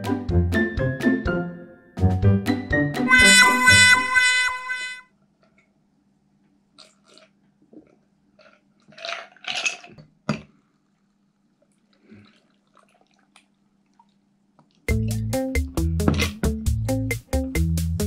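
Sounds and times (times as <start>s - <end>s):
soft splashes: 11.7s - 14.8s.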